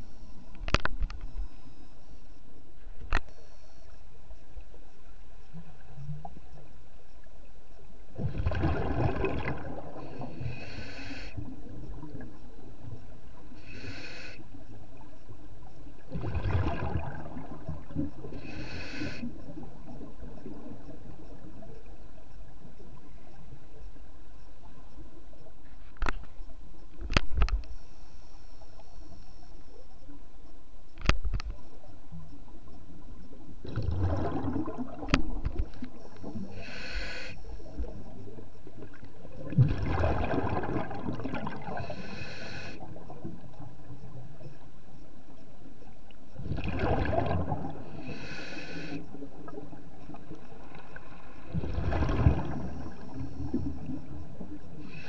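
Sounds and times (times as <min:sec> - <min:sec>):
exhaled bubbles gurgling: 0:08.2 - 0:10.8, 0:16.0 - 0:21.7, 0:33.6 - 0:44.2, 0:46.3 - 0:54.9
air hissing through regulator: 0:13.6 - 0:14.4, 0:36.2 - 0:37.8, 0:41.7 - 0:42.8, 0:48.0 - 0:49.0.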